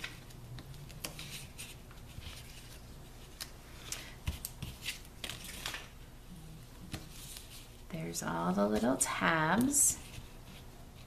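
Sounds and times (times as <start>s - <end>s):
paper and tape rustling: 0.0s - 6.0s, 6.9s - 7.8s.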